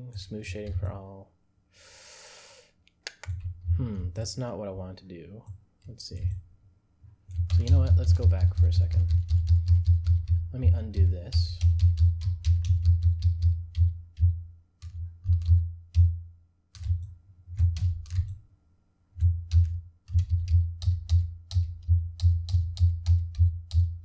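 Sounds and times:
keyboard keys clicking: 0:07.3 - 0:10.4, 0:11.0 - 0:16.1, 0:16.8 - 0:18.4, 0:19.2 - 0:24.0.

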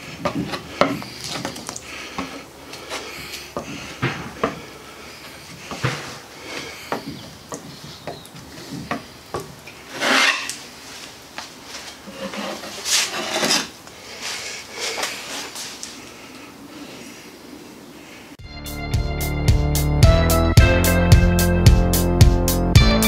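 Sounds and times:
spreader scraping compound on wood: 0:09.8 - 0:11.1, 0:11.7 - 0:15.8.

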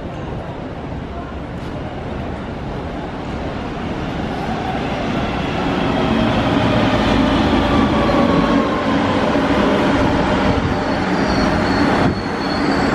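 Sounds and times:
metro train arriving: 0:00.0 - 0:12.9
faint high squeal: 0:10.4 - 0:12.9.

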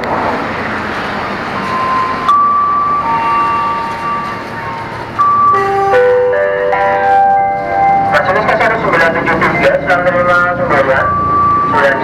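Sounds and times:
electric train humming: 0:00.0 - 0:12.0
chime melody: 0:01.6 - 0:08.8, 0:10.7 - 0:12.0.

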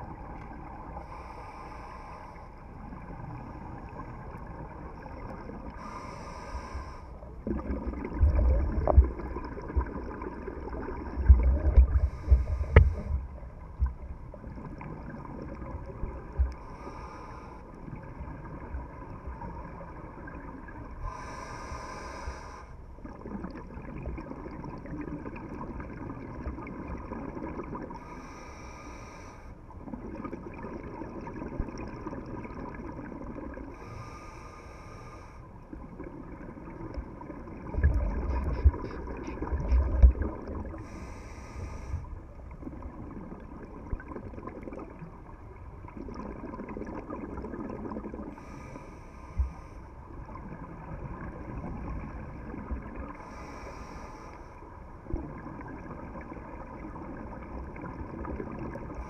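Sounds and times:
steady underwater drone: 0:00.0 - 0:59.0
regulator inhale hiss: 0:01.0 - 0:02.6, 0:05.8 - 0:07.3, 0:11.9 - 0:13.4, 0:16.6 - 0:17.8, 0:21.0 - 0:22.8, 0:28.0 - 0:29.6, 0:33.7 - 0:35.6, 0:40.8 - 0:42.2, 0:48.3 - 0:50.0, 0:53.1 - 0:54.8
exhaled bubbles gurgling: 0:02.7 - 0:28.9, 0:29.8 - 0:34.2, 0:35.6 - 0:59.0.

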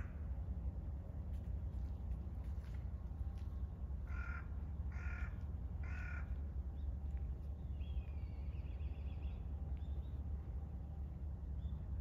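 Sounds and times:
steady low rumble: 0:00.0 - 0:12.0
crow cawing: 0:04.1 - 0:06.3.

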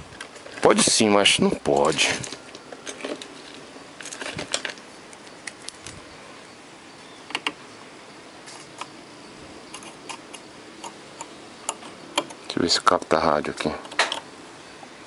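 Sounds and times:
steady faint hiss: 0:00.0 - 0:15.0.

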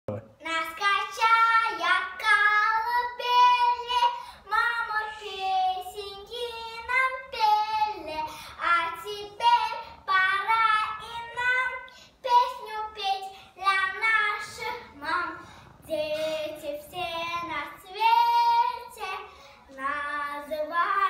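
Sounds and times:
girl singing: 0:00.4 - 0:21.0.

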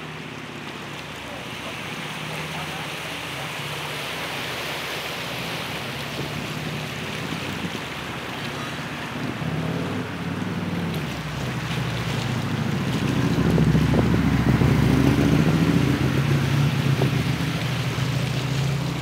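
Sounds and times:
low engine hum: 0:00.0 - 0:19.0
water rushing: 0:00.0 - 0:19.0
wind rushing: 0:13.0 - 0:16.3.

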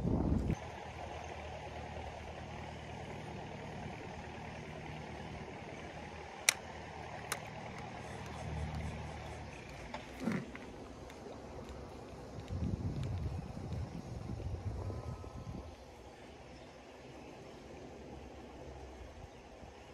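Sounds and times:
distant engine humming: 0:00.0 - 0:19.9
sharp clicks: 0:06.4 - 0:13.9.

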